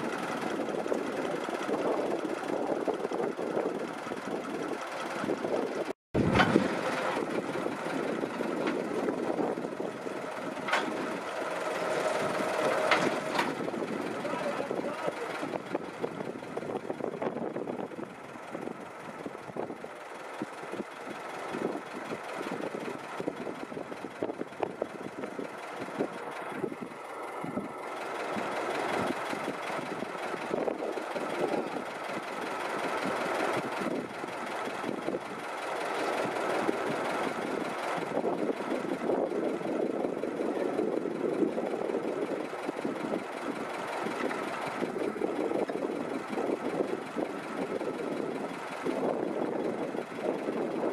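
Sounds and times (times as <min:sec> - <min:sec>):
excavator machinery knocking: 0:10.5 - 0:14.2.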